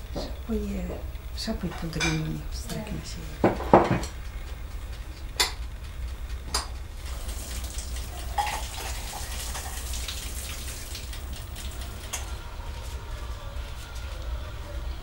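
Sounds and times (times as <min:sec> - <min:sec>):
steady low hum: 0:00.0 - 0:15.0
dishes clinking: 0:01.6 - 0:04.3, 0:05.3 - 0:05.6, 0:08.1 - 0:09.8
light crackling hiss: 0:04.1 - 0:12.3.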